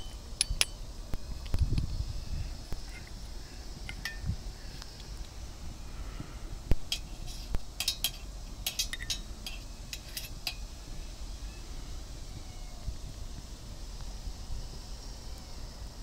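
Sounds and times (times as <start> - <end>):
metal rod clinking on metal stove: 0.0 - 0.8, 3.9 - 4.3, 6.9 - 10.6.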